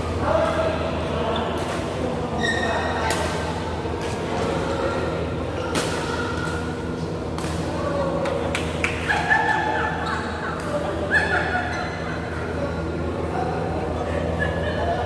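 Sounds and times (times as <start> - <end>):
low hall hum: 0.0 - 15.0
racket hitting shuttlecock: 5.6 - 6.7.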